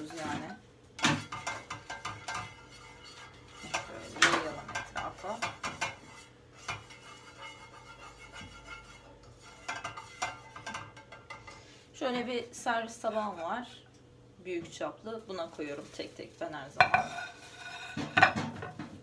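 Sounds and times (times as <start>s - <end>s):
spatula scraping frying pan: 0.0s - 11.9s, 13.0s - 13.7s, 16.7s - 18.8s.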